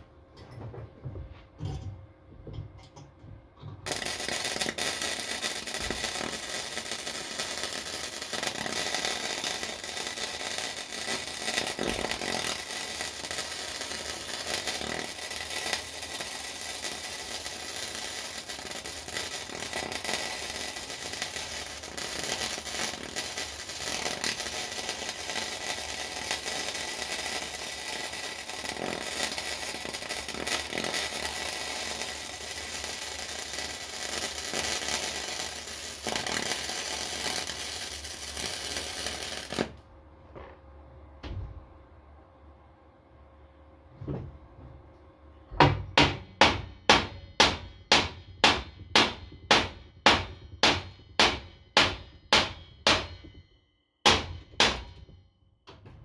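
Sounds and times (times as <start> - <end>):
welding arc crackling: 3.8 - 39.8.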